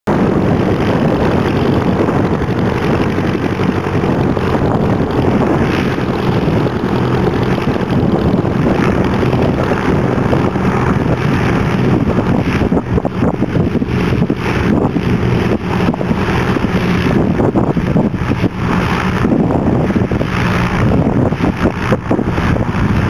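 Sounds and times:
light aircraft engine and propeller: 0.1 - 23.0.

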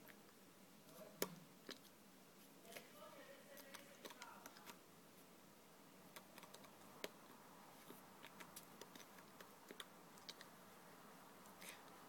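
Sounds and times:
faint clicks and taps: 2.7 - 4.8.

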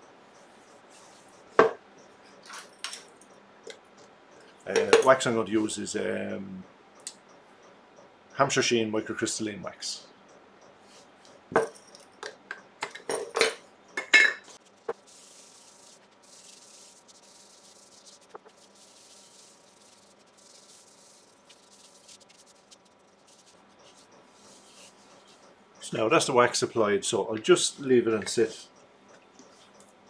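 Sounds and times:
pad rubbing wax on wood: 14.6 - 25.5.

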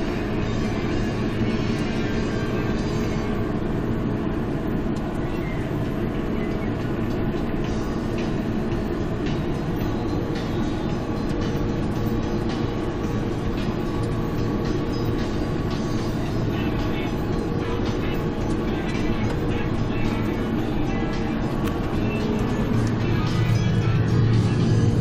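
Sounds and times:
tractor engine running under load: 0.0 - 25.0.

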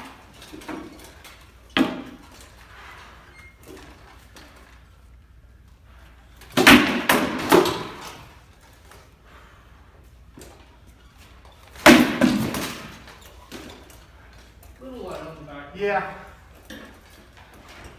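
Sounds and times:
swords striking shields: 6.5 - 8.2, 11.8 - 13.1.

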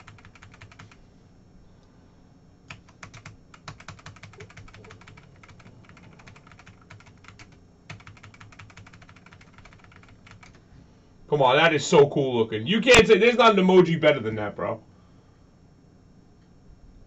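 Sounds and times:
computer keyboard typing: 0.0 - 1.0, 2.7 - 10.6
low steady hum: 0.0 - 17.0.

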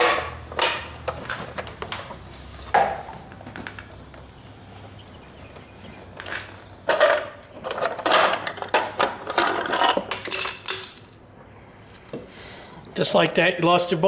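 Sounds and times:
bolts rattling: 6.2 - 11.4.

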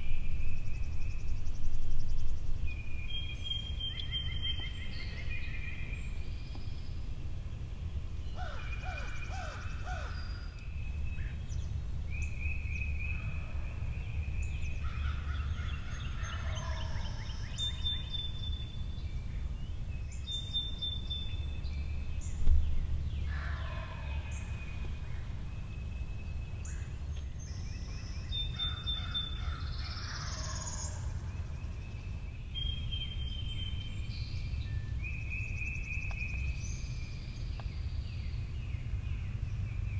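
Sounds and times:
steady low rumble: 0.0 - 28.7
songbirds singing: 0.0 - 39.9.

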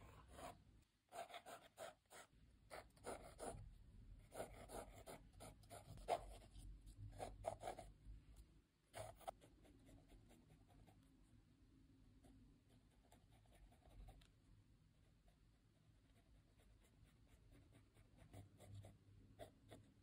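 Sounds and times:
pencil scratching on paper: 0.0 - 3.6, 4.2 - 7.9, 8.9 - 11.1, 12.6 - 14.3, 16.0 - 20.0.

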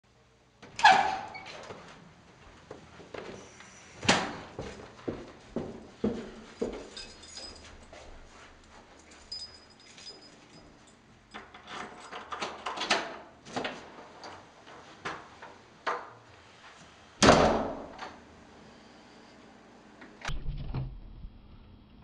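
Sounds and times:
footsteps in hallway: 0.7 - 11.4.

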